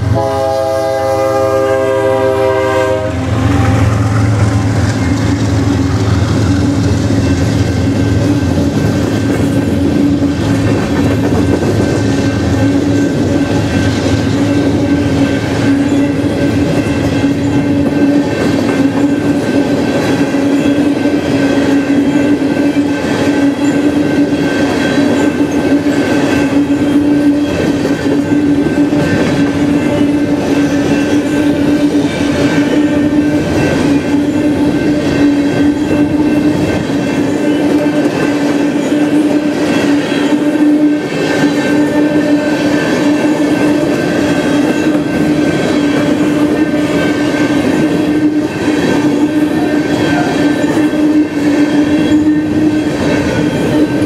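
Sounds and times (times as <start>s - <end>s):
locomotive horn: 0.0s - 7.3s, 31.2s - 36.6s, 37.3s - 54.0s
train cars rumbling: 0.0s - 54.0s.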